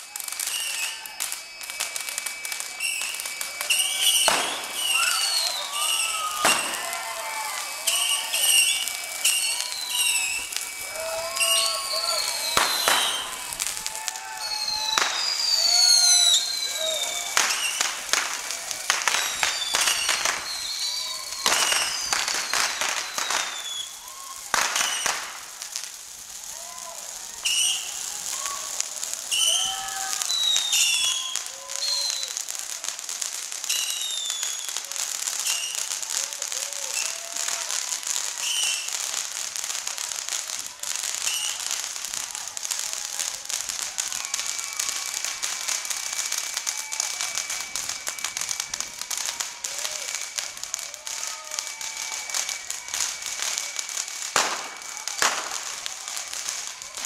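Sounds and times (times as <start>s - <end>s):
high whistling tones: 0.0s - 25.2s, 27.4s - 28.0s, 29.3s - 32.3s, 44.1s - 55.6s
fireworks crackling: 0.0s - 57.0s.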